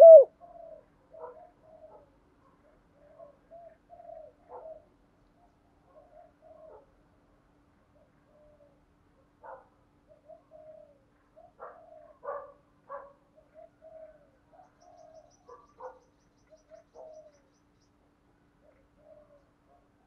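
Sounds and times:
dove cooing: 0.0s - 4.9s, 10.1s - 12.6s, 13.4s - 15.7s, 16.5s - 17.4s, 18.6s - 19.8s.

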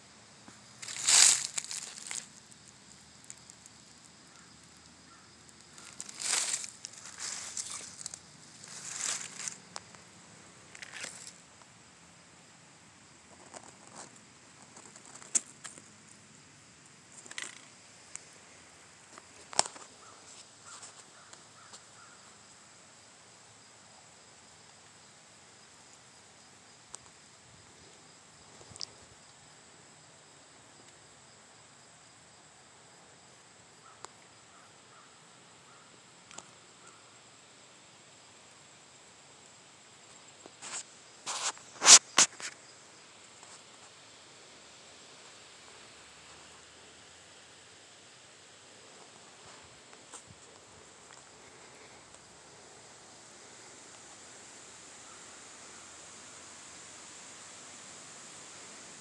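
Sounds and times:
insect trill: 0.0s - 59.0s
rustling in dry leaves: 0.5s - 10.0s.

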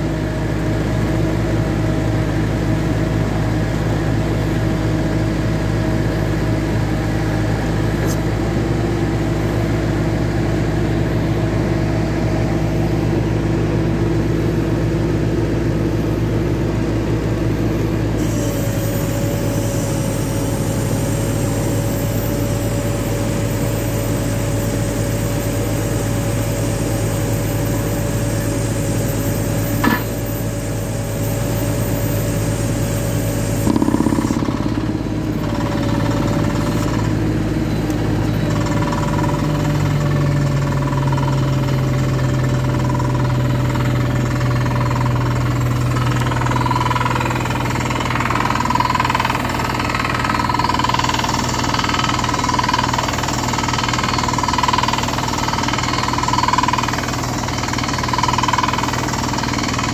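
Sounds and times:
engine hum: 0.0s - 59.9s
rock drill boring into rock: 18.2s - 59.9s.

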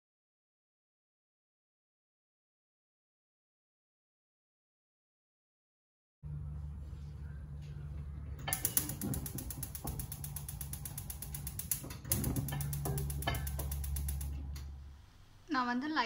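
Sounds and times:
low steady hum: 6.2s - 16.0s
gas stove igniter clicking: 8.4s - 15.4s.

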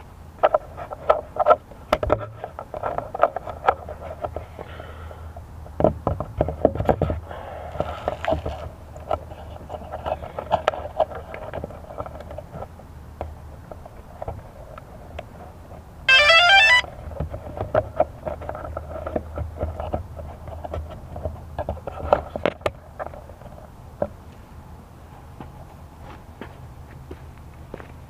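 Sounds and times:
hands handling drone: 16.1s - 16.8s.

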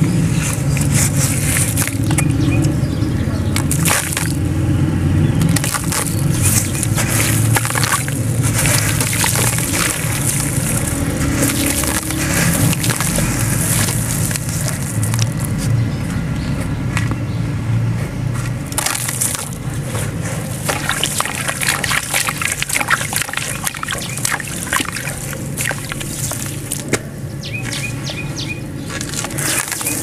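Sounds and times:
wet cement crumbling by hand: 0.5s - 2.8s, 3.6s - 4.5s, 5.4s - 15.6s, 18.6s - 28.0s, 28.9s - 30.0s.

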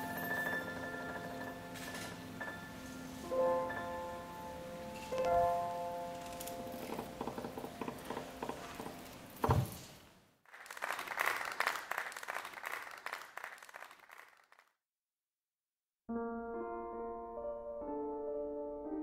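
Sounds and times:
upright piano notes: 0.0s - 8.4s
thump: 9.4s - 10.0s
audience applause: 10.5s - 14.7s.

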